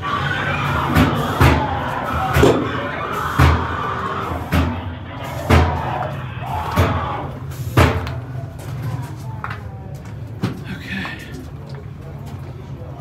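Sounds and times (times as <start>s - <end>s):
droning background soundtrack: 0.0s - 7.6s
heavy slams: 0.3s - 8.3s.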